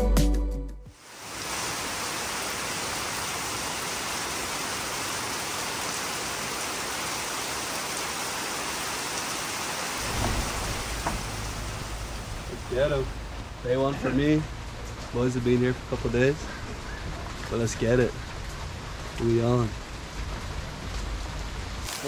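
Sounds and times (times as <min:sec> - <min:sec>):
heavy rain pouring: 0:01.0 - 0:22.0
low rumble: 0:10.0 - 0:21.8.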